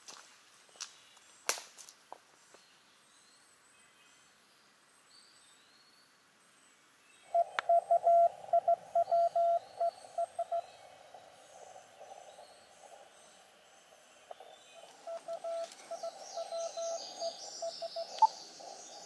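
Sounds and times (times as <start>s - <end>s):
morse code tone: 7.7s - 9.6s, 15.1s - 17.0s.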